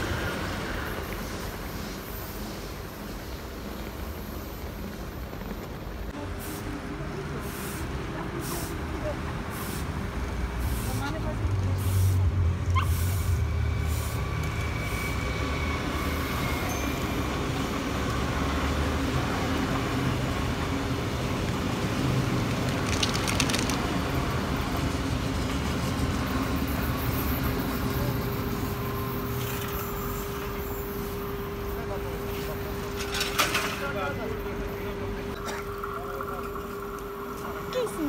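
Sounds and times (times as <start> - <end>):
train wheels rumbling on rail: 0.0 - 35.1
short clatter: 22.5 - 24.0.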